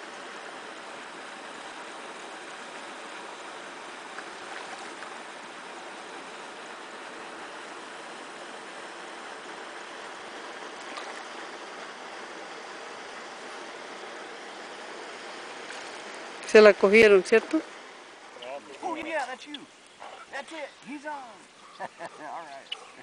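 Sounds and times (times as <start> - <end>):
steady hiss: 0.0 - 23.0
fish splashing on water: 4.1 - 5.2, 10.7 - 11.5.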